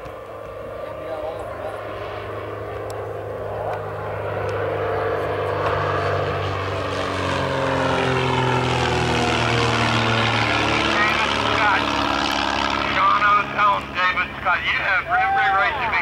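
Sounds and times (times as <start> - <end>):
biplane engine and propeller droning: 0.0 - 16.0.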